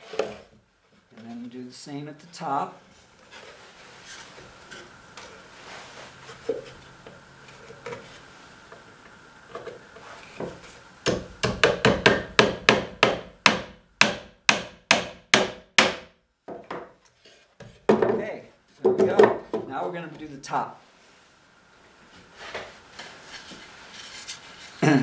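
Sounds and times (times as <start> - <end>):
wood-on-wood handling knocks: 10.4 - 17.0, 17.6 - 19.7.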